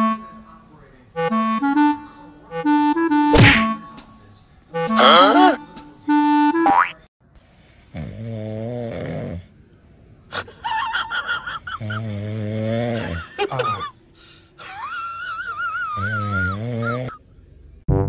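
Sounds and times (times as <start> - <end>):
low snores: 7.6 - 9.6, 11.7 - 13.3, 16.0 - 17.2.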